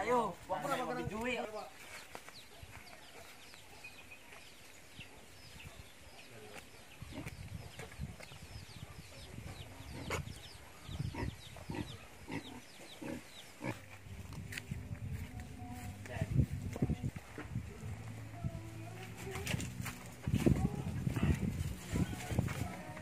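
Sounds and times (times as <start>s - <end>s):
bird chirping: 1.8s - 14.3s.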